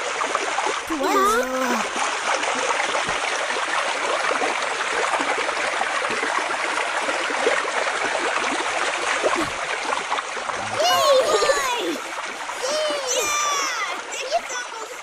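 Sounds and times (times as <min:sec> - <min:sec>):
river rushing over rapids: 0:10.5 - 0:14.9.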